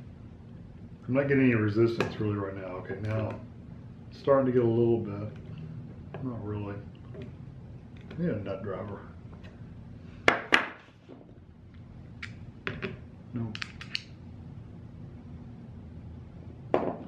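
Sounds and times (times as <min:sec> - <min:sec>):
tools knocking on table: 0:16.8 - 0:17.0.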